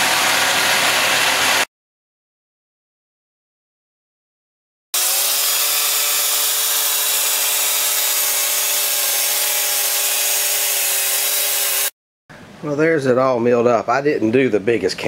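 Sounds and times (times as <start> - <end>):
band sawmill engine drone: 0.0 - 1.7
saw blade cutting wood: 5.0 - 12.0.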